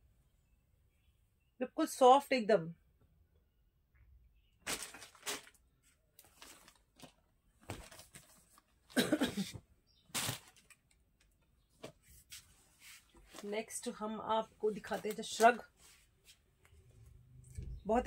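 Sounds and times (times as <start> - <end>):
clothes rustling: 4.6 - 10.8, 11.7 - 17.2.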